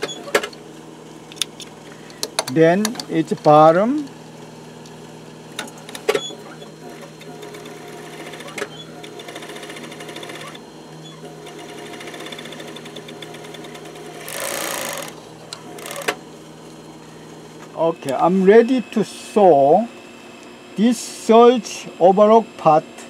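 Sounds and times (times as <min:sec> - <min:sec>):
overlock machine stitching: 0:05.6 - 0:10.6, 0:11.2 - 0:16.2.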